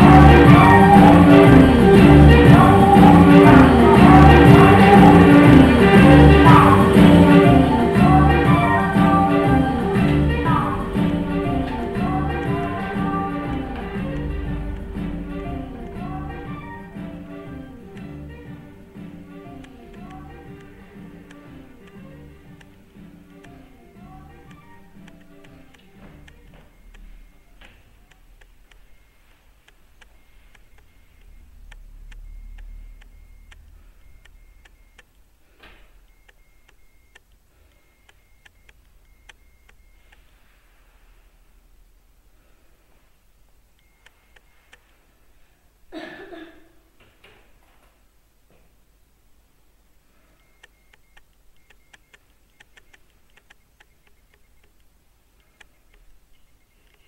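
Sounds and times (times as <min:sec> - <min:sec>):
low hum: 0:00.0 - 0:44.7
faint ticking clicks: 0:19.3 - 0:40.3, 0:43.7 - 0:45.0, 0:50.4 - 0:57.0.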